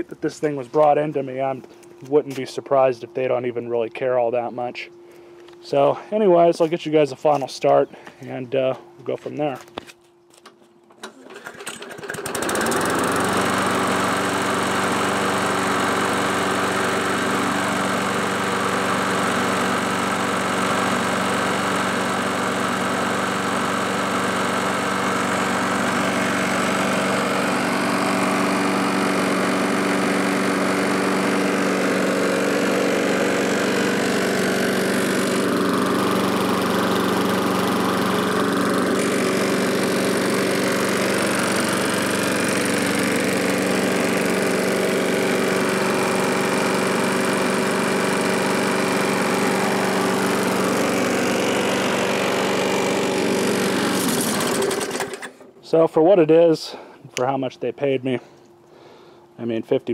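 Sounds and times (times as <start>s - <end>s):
lawn mower engine pull-started: 9.8s - 55.9s.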